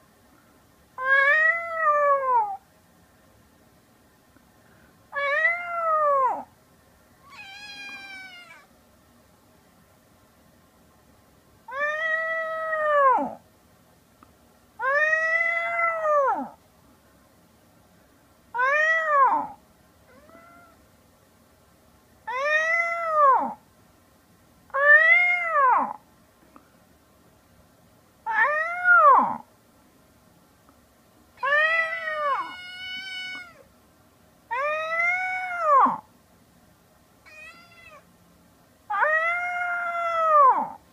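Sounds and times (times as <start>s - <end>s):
kitten meowing: 7.2s - 8.7s, 18.6s - 20.8s, 31.4s - 33.6s, 37.3s - 38.0s.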